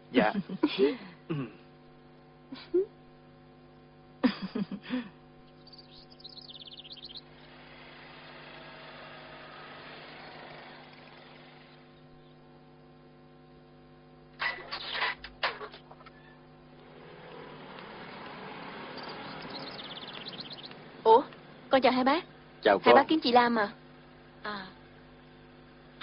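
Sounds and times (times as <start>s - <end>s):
electrical hum: 0.0s - 26.0s
small bird twittering: 5.4s - 7.5s, 18.8s - 21.3s.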